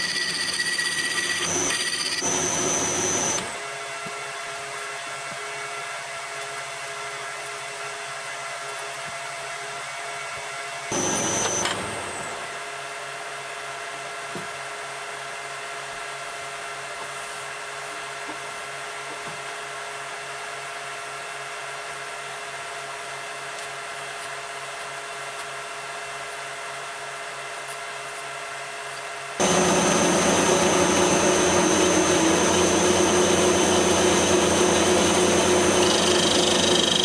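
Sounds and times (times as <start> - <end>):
lathe motor humming: 0.0 - 3.6, 10.9 - 12.1, 29.4 - 37.0.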